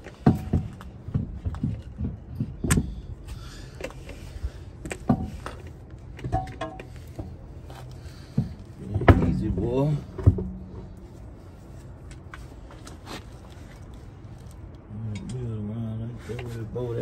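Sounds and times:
lug nuts clinking on wheel studs: 0.0 - 11.0.

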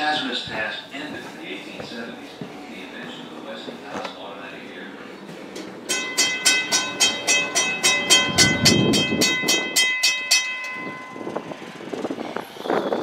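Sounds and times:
railroad bell ringing: 5.9 - 13.0.

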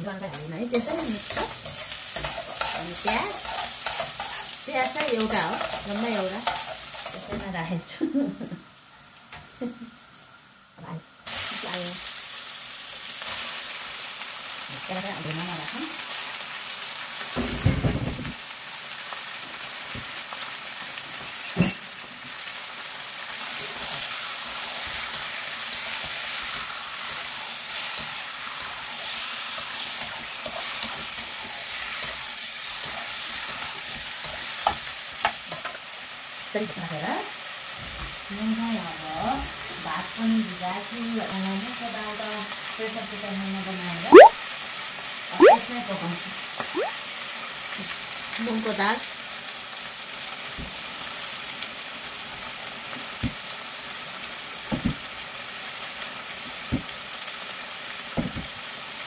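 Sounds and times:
onions sizzling in oil: 0.0 - 59.0
spatula scraping pan: 0.3 - 7.4.

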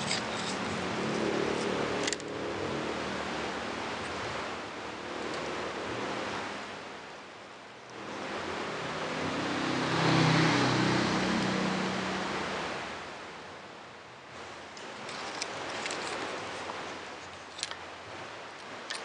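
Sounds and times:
motor vehicle passing: 0.0 - 6.9, 8.0 - 13.6.

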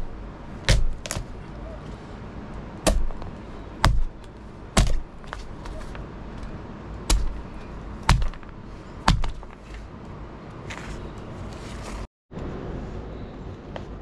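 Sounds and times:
blade chopping meat: 0.0 - 1.3, 2.8 - 4.2, 4.8 - 5.8, 7.1 - 7.5, 8.1 - 8.5, 9.1 - 9.5.

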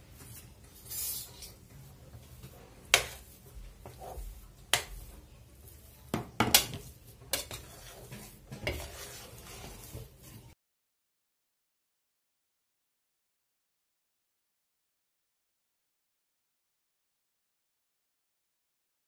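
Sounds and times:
spoon scraping thick paste: 0.2 - 10.6
spoon clacking against pan: 6.1 - 10.2.

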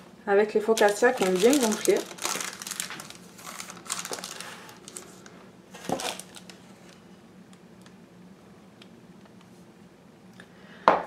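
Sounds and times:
faint steady hum: 0.0 - 11.0
parchment paper rustling: 0.7 - 7.0.

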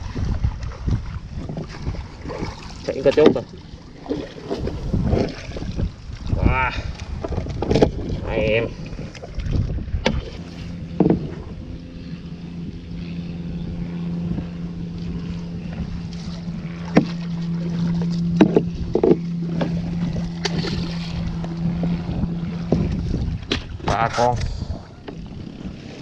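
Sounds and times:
motor humming: 0.0 - 26.0
wind on microphone: 0.0 - 26.0
knocks on fibreglass boat: 10.9 - 11.4, 16.8 - 17.2, 18.4 - 19.8.

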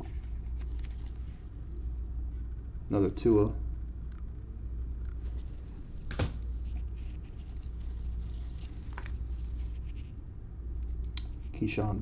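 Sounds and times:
cards sliding and rustling: 0.0 - 1.6, 5.1 - 10.1
low hum: 0.0 - 11.6.

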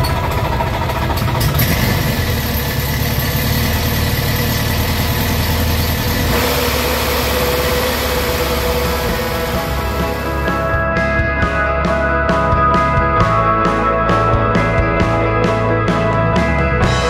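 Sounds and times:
aircraft engine idling: 0.0 - 13.4.

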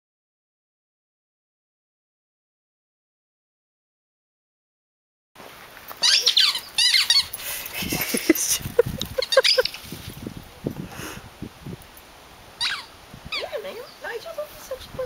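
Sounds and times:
squeaky dog toy squeaking: 6.0 - 7.4, 9.3 - 9.7, 12.6 - 13.6.

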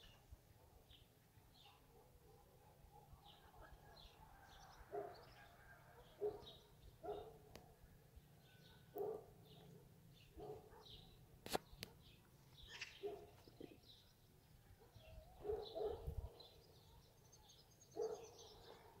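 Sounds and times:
small birds chirping: 0.0 - 19.0
dog barking: 1.6 - 3.4, 4.9 - 7.6, 8.6 - 11.1, 13.0 - 13.4, 14.8 - 16.4, 18.0 - 19.0.

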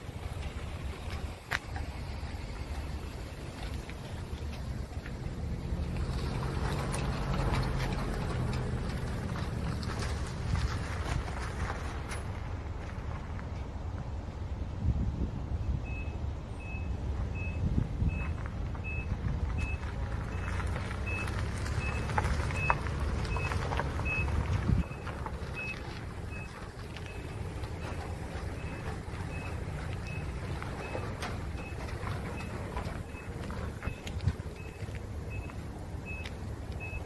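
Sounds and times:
truck engine running: 0.0 - 37.0
high reversing beep: 15.8 - 28.0, 31.6 - 37.0.

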